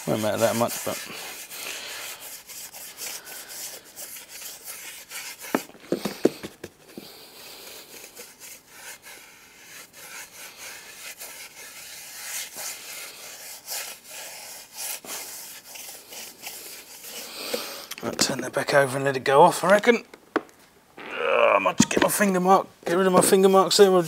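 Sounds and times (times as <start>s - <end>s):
paintbrush scrubbing metal: 0.0s - 5.7s, 7.8s - 17.7s.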